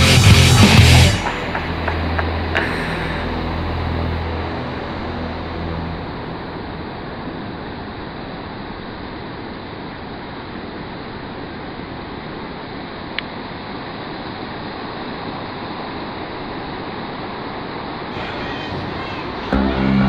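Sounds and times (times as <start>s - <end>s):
music track: 0.0s - 8.0s, 18.2s - 20.0s
ocean surf breaking: 1.1s - 9.9s.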